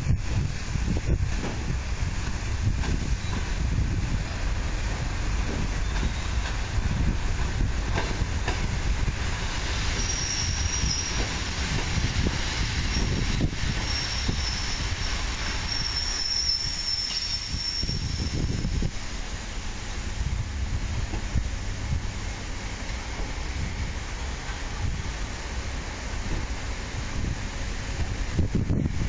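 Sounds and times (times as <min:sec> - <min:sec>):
train rumbling: 0:00.0 - 0:29.0
high brake squeal: 0:05.8 - 0:06.4, 0:09.9 - 0:11.4, 0:12.8 - 0:18.8.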